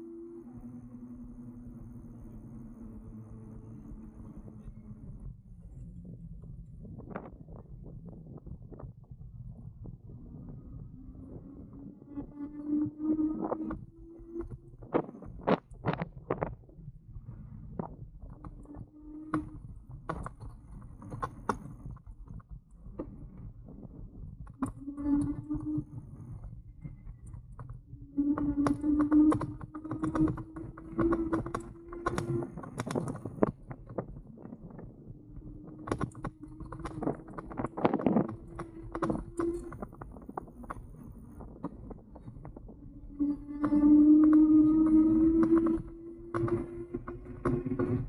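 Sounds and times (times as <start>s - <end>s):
electric motor whine: 0.0s - 5.5s, 10.3s - 16.1s, 27.9s - 33.5s, 42.6s - 48.0s
steady rumble: 0.0s - 48.0s
bike and camera rattling: 1.3s - 48.0s.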